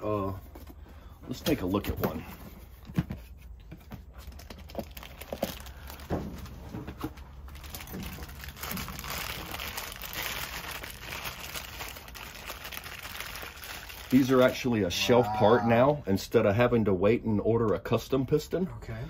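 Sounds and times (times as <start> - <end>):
plastic bag crinkling: 4.2 - 6.7, 7.3 - 14.7.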